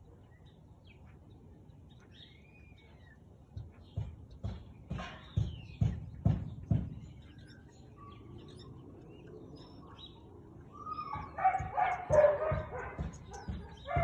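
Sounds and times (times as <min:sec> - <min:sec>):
husky barking: 0:10.9 - 0:14.0.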